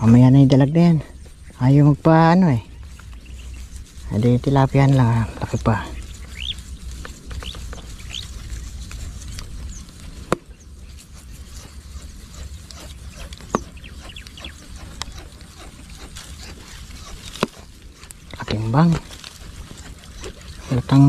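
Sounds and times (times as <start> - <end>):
low rumble: 0.0 - 21.0
rising bird chirps: 2.6 - 15.9.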